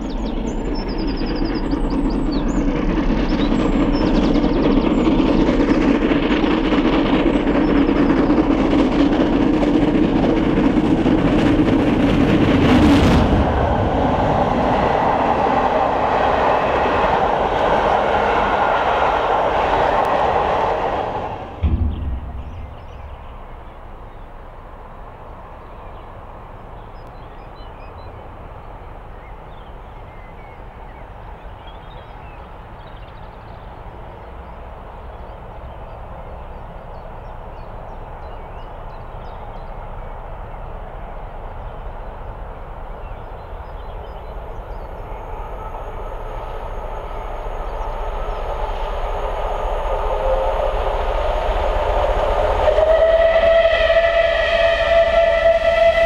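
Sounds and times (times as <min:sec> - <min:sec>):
steam train rumble: 0:00.0 - 0:56.0
train whistle: 0:45.1 - 0:56.0.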